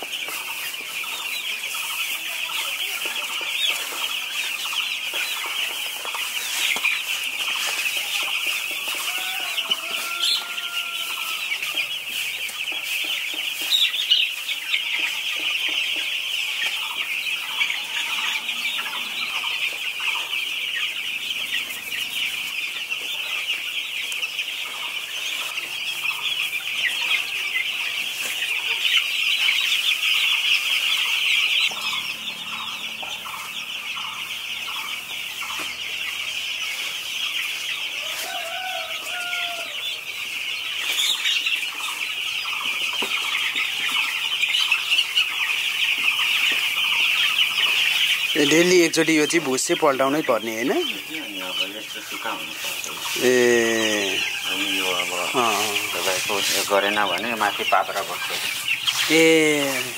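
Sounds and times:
chicks peeping: 0.0 - 59.9
lower chirps: 30.6 - 36.4.

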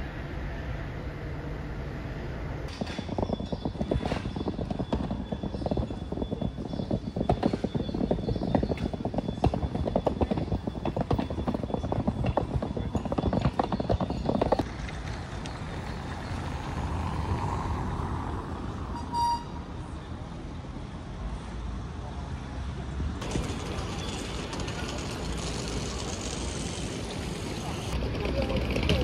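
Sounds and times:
city background noise: 0.0 - 29.0
suitcase wheels rattling on cobblestones: 2.7 - 16.8, 23.2 - 29.0
short high beep: 19.0 - 19.6.

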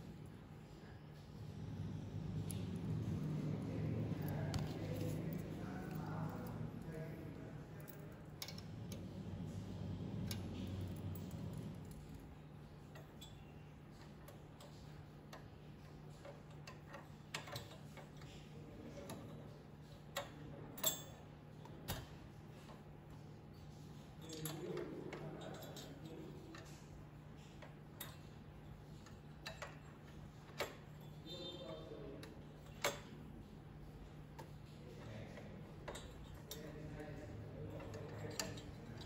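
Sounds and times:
steady low hum: 0.0 - 39.0
clicks and knocks of hardware: 7.8 - 9.1, 10.2 - 18.4, 19.0 - 22.8, 24.2 - 33.2, 34.4 - 39.0.

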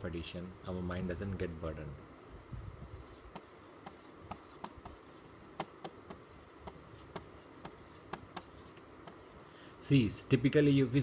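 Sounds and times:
marker pen strokes on whiteboard: 2.8 - 9.4.

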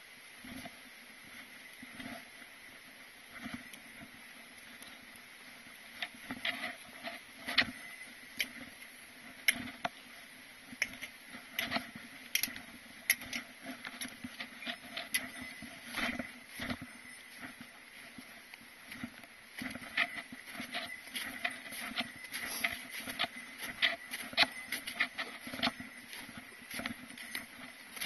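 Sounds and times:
footsteps crunching on snow: 11.0 - 28.0.

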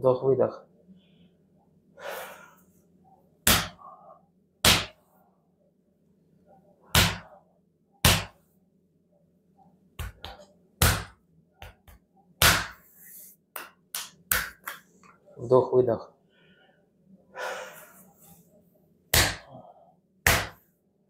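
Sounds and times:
hand slapping bare back: 3.4 - 3.8, 4.6 - 5.0, 7.0 - 7.3, 8.0 - 8.4, 10.0 - 12.8, 13.5 - 14.9, 19.1 - 19.5, 20.2 - 20.6.

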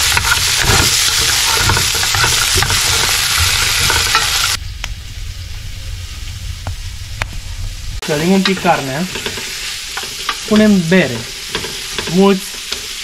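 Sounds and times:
meat sizzling in fat: 0.0 - 4.6, 8.0 - 13.0
wooden spatula scraping pot: 0.0 - 4.6, 8.4 - 13.0.

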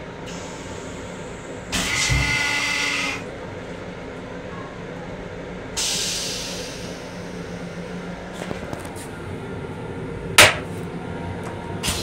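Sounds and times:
hiss: 5.8 - 7.6.

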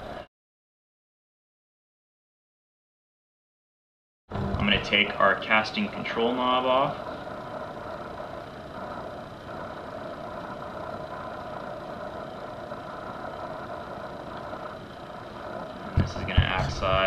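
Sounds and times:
steady background hum: 4.3 - 17.0.

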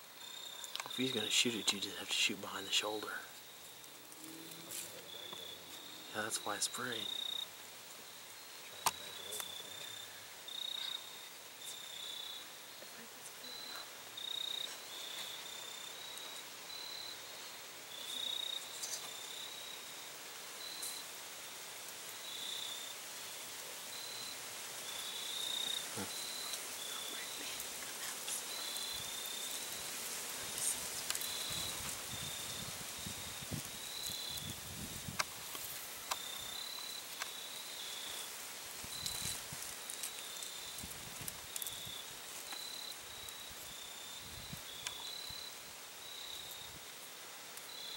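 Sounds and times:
crickets chirping: 0.0 - 47.9
steady outdoor hiss: 0.0 - 47.9
faint clicks: 0.6 - 1.0, 30.5 - 31.4.

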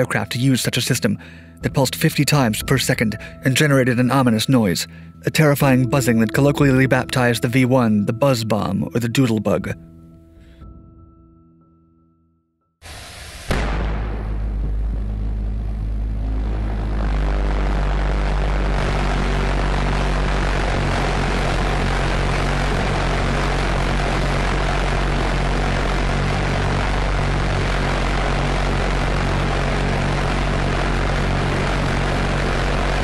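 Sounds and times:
pulse-jet engine buzzing: 12.8 - 33.0.

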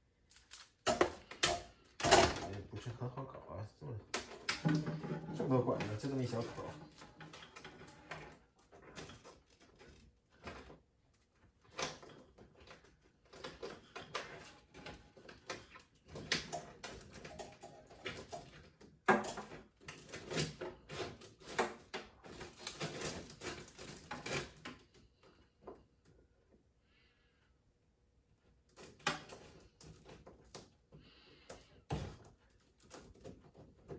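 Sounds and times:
hoses scraping against metal sink: 4.6 - 8.4.

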